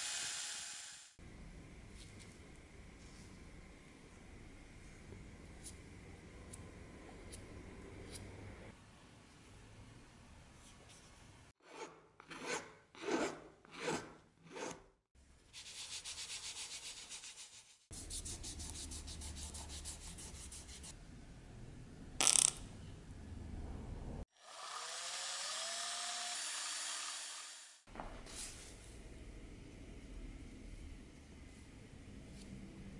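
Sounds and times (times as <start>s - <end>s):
cordless drill spinning up: 24.5s - 27.8s.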